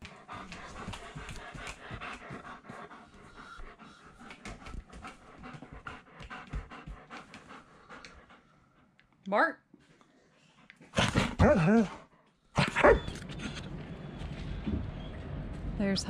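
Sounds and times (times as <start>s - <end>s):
dog panting: 0.0s - 9.0s.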